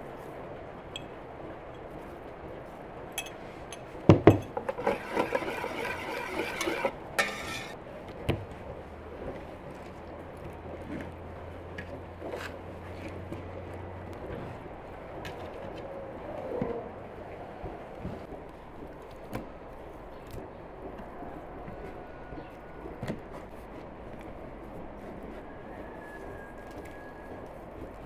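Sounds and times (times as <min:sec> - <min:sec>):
whisk beating batter in bowl: 0:04.6 - 0:07.8.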